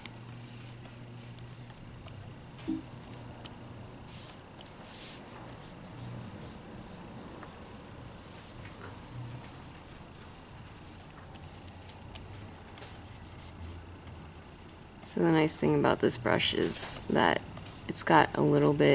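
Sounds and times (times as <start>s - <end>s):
low steady hum: 0.0s - 18.9s
stylus scratching and tapping screen: 1.2s - 3.0s, 4.6s - 15.6s.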